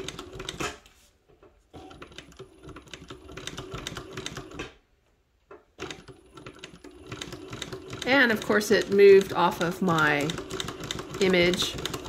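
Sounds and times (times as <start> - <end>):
embroidery machine needle clatter: 5.8 - 12.0.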